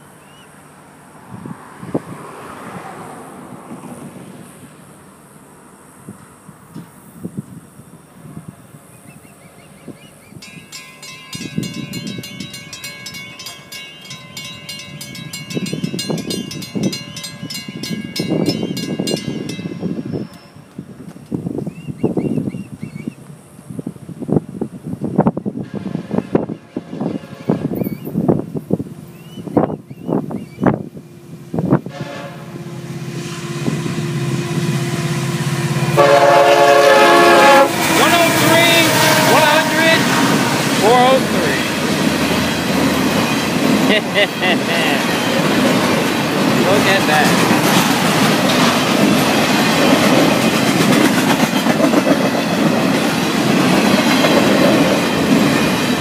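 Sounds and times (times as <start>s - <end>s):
low rumbling gusts: 1.1s - 4.8s, 9.8s - 56.0s
wind gusts on microphone: 1.2s - 4.8s, 6.0s - 9.1s, 9.7s - 13.6s, 14.2s - 32.5s
railroad crossing bells ringing: 10.3s - 21.0s, 32.6s - 56.0s
locomotive air horn blast: 25.6s - 28.1s, 31.8s - 34.7s, 35.6s - 41.4s.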